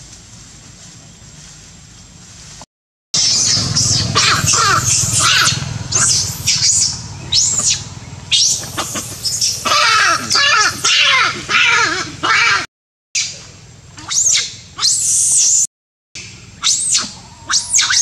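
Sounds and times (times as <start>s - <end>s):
monkey lower wavering cries: 3.2s - 12.7s, 16.6s - 18.0s
monkey shrill screams: 3.2s - 13.3s, 14.0s - 15.7s, 16.6s - 18.0s.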